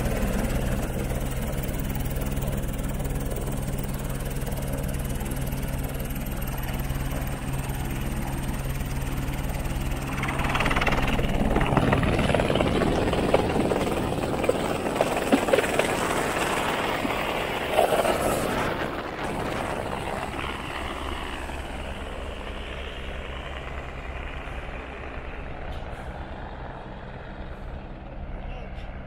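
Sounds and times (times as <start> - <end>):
helicopter hovering: 0.0 - 29.0
gusty rushing noise: 9.7 - 20.6.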